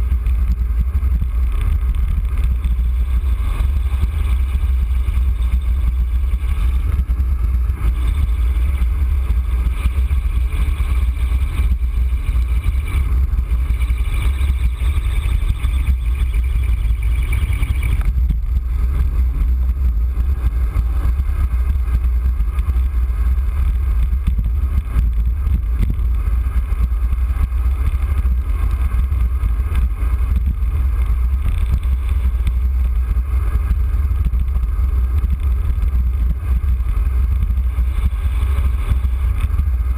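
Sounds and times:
wind buffeting microphone: 0.0s - 39.9s
tyre noise on wet road: 17.9s - 39.9s.

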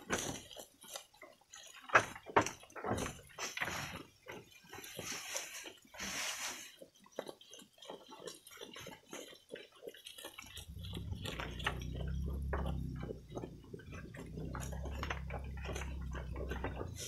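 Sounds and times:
goat crunching leaves: 0.0s - 17.0s
low steady hum: 10.6s - 17.0s.

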